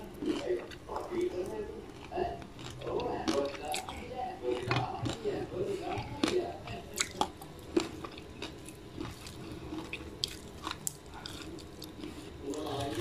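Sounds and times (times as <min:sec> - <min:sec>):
papadam crackling: 0:00.0 - 0:13.0
fingers mixing rice: 0:04.6 - 0:13.0.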